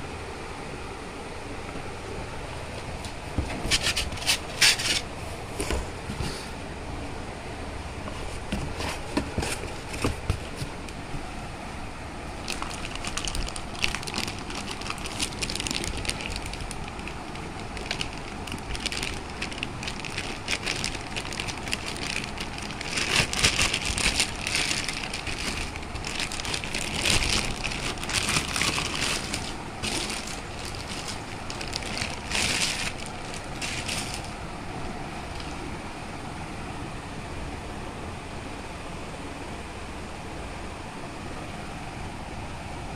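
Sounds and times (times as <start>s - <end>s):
cardboard scraping: 3.2s - 6.5s, 8.0s - 10.9s, 12.4s - 34.4s
plastic packaging crinkling: 3.7s - 5.1s, 12.4s - 34.4s.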